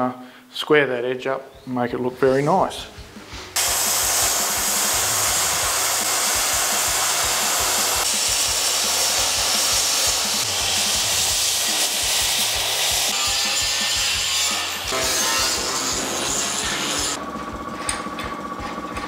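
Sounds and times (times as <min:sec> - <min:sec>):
plasma cutter hissing: 0:03.6 - 0:14.3.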